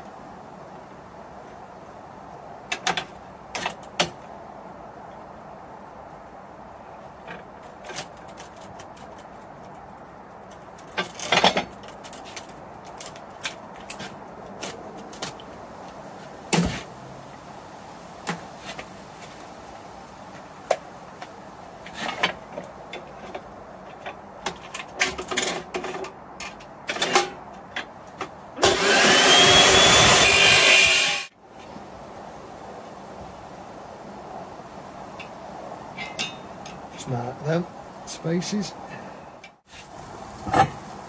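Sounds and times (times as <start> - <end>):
chop saw whining: 28.6 - 31.3
saw disc grinding metal: 28.6 - 31.3.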